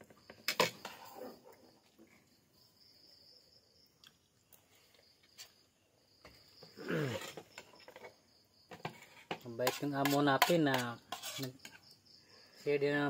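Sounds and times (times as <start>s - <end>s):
crickets chirring: 0.0s - 13.0s.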